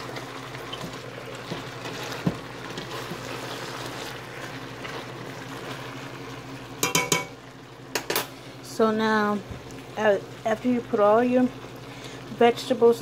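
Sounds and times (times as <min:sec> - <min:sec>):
food sizzling in a pot: 0:00.0 - 0:13.0
spoon knocking against pot: 0:06.8 - 0:07.4.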